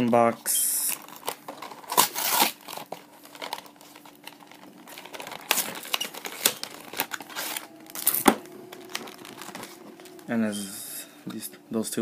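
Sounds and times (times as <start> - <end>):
packaging being torn open: 0.9 - 10.3.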